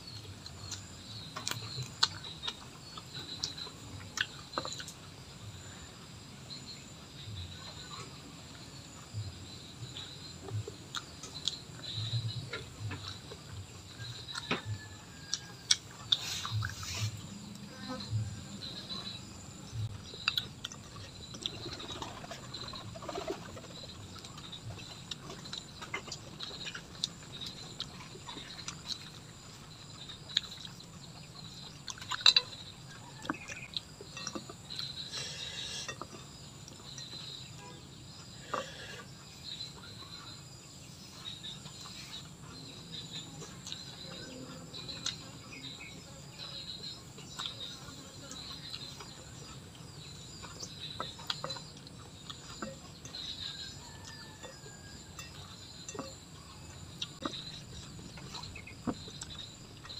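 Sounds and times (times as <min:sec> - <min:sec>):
faint chirping: 0:00.0 - 0:59.9
person chewing and smacking: 0:00.1 - 0:05.0, 0:10.5 - 0:12.0, 0:12.6 - 0:17.3, 0:19.9 - 0:22.7, 0:23.6 - 0:37.2, 0:43.1 - 0:45.7, 0:46.5 - 0:59.9.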